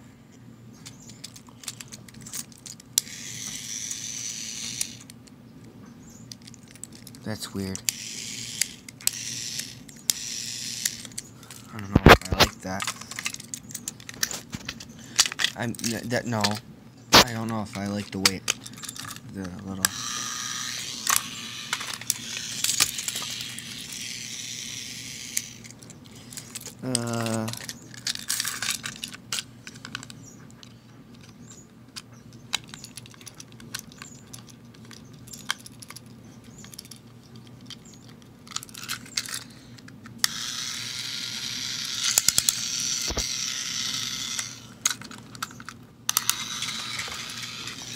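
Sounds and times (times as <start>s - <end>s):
plastic handling clicks: 0.8s - 2.9s, 10.9s - 20.0s, 25.4s - 40.4s, 44.8s - 47.9s
toy train motor whirring: 0.8s - 5.2s, 6.3s - 16.6s, 17.2s - 47.9s.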